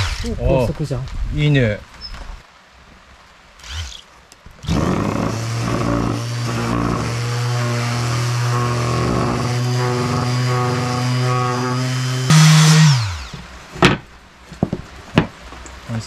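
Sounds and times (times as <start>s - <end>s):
orbital sander sanding wood: 4.6s - 13.5s.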